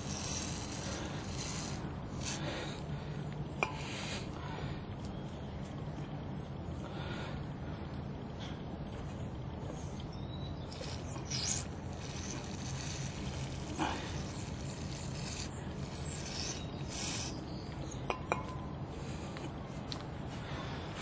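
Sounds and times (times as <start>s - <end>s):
aerosol spray hissing: 0.0s - 2.5s, 10.7s - 17.4s.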